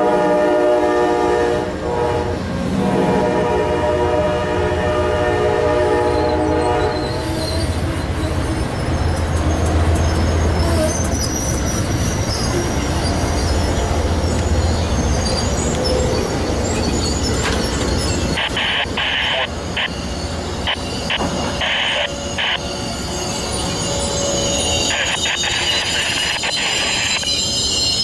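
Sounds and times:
train horn: 0:00.0 - 0:07.6
train wheels rumbling on rail: 0:00.0 - 0:28.0
high wheel squeal: 0:06.0 - 0:28.0.

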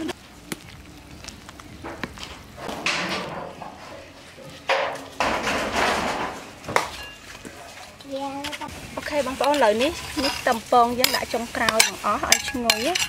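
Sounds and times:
soup boiling: 0:00.0 - 0:02.8
metal ladle clinking in a pot: 0:09.4 - 0:13.0.

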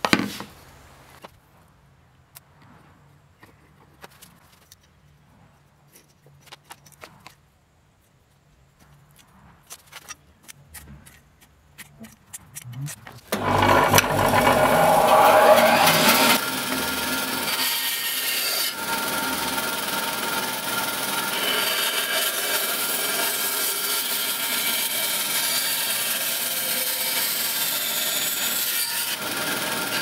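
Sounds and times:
bandsaw motor whine: 0:13.3 - 0:23.6.

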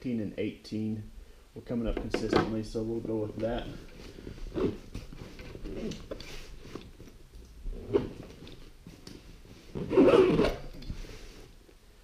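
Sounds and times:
stiff fabric rustling and crinkling: 0:02.8 - 0:11.7.

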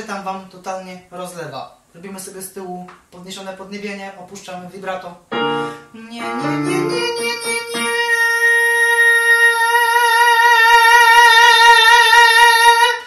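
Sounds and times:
piano notes: 0:05.3 - 0:08.2.

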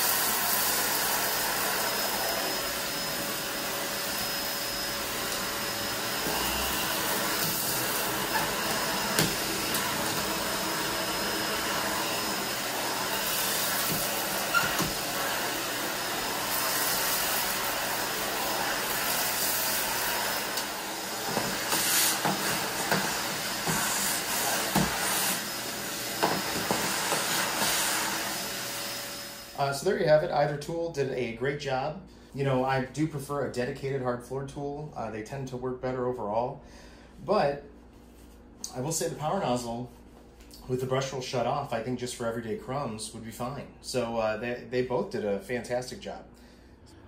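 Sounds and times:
vacuum cleaner running: 0:00.0 - 0:30.0.

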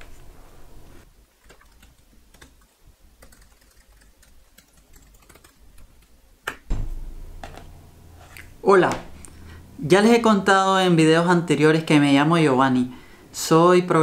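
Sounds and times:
laptop keyboard typing: 0:01.4 - 0:06.1
deep thump: 0:06.7 - 0:08.2.

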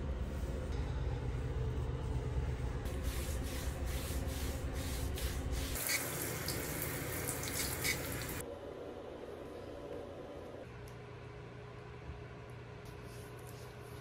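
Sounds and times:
tap water running into sink: 0:05.8 - 0:08.4.

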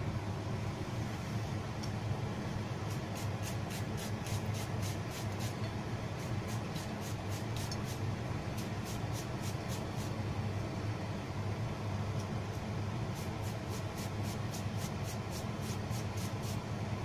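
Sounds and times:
steady low hum: 0:00.0 - 0:17.0
peeler scraping cucumber: 0:02.9 - 0:05.6, 0:13.2 - 0:16.6.

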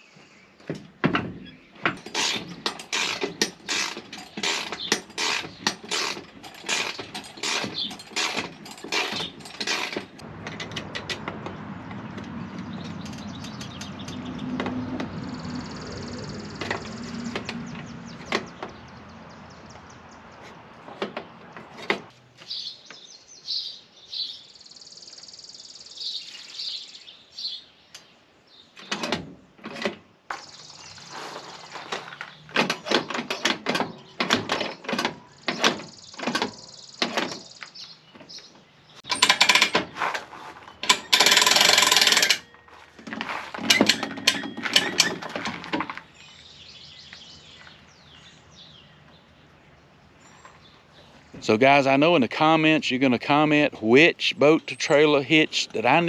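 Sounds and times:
metallic clicks and clanks: 0:00.7 - 0:15.2, 0:31.9 - 0:37.6, 0:39.0 - 0:46.1.

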